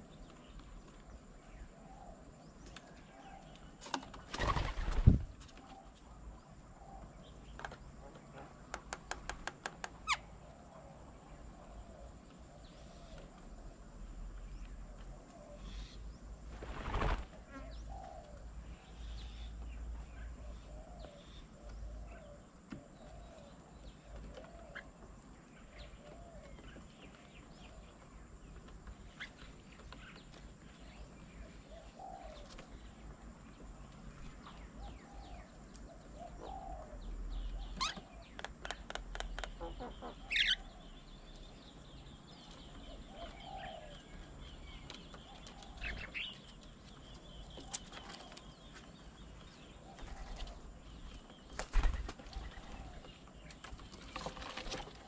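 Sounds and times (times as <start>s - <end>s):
dove cooing: 23.0s - 24.9s, 34.8s - 38.4s, 42.9s - 44.0s
bird chirps: 34.5s - 54.7s.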